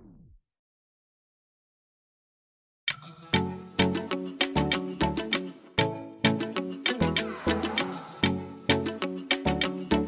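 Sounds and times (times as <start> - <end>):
music with sharp struck notes: 6.3 - 10.0.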